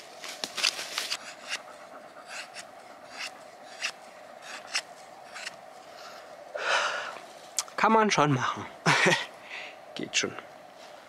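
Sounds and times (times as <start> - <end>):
knife scraping wooden stick: 0.6 - 5.6.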